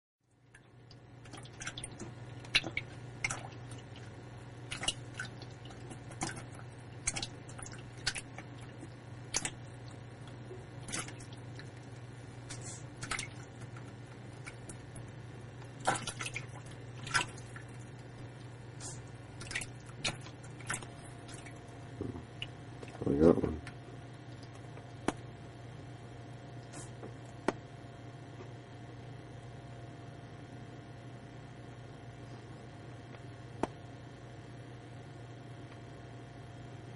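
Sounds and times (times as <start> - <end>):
steady low hum: 0.3 - 36.9
frog splashing in water: 1.2 - 4.1, 4.7 - 11.8, 12.4 - 14.8, 15.7 - 17.8, 18.8 - 21.6.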